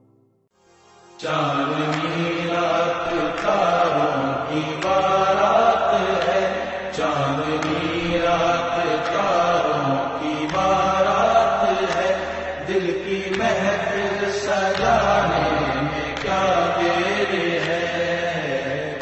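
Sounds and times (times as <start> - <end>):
chant-like vocal: 1.2 - 19.0
low sustained bass: 14.8 - 17.2.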